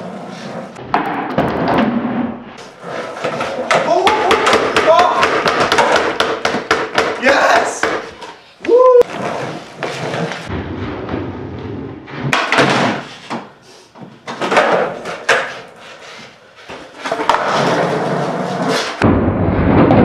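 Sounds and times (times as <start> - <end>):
skateboard wheels rolling on concrete: 0.0 - 19.2
skateboard clacks and thuds: 0.8 - 8.2, 9.1 - 15.9, 16.6 - 19.2.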